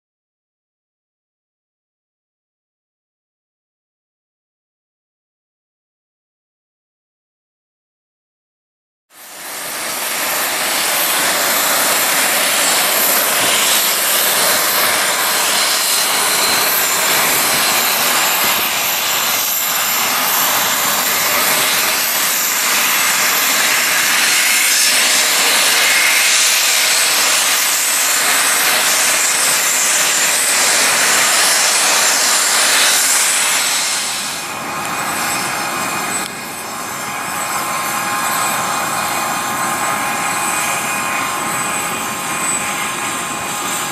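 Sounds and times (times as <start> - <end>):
jet engines whining: 9.2 - 43.9.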